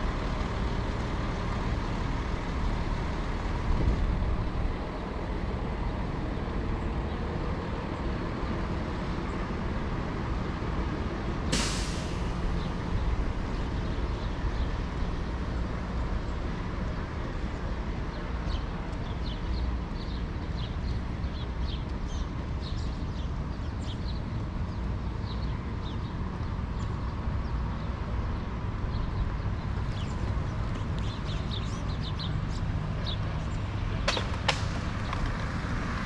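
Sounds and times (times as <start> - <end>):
city traffic rumble: 0.0 - 36.0
brief hiss: 11.5 - 12.3
small birds chirping: 12.6 - 33.9.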